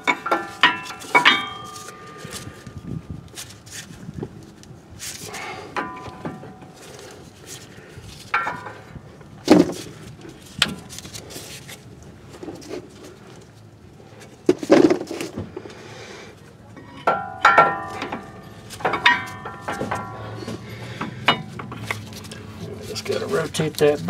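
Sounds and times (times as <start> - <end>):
metal brake caliper clunking: 8.3 - 9.0, 16.7 - 22.5.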